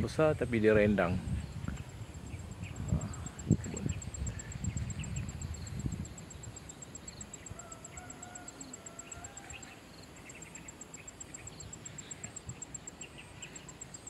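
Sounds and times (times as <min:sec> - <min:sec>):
birds chirping: 0:00.0 - 0:14.0
insect high ticking: 0:00.0 - 0:14.0
faint rooster crowing: 0:07.2 - 0:10.1.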